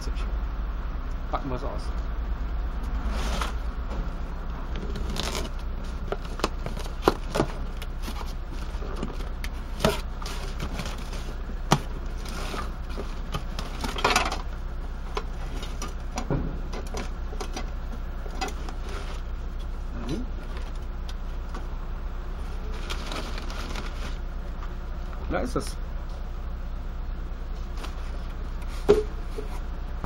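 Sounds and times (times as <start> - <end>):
steady low hum: 0.0 - 30.0
cardboard scraping rustle: 2.9 - 3.7, 4.8 - 14.4, 18.5 - 19.4, 22.5 - 24.2.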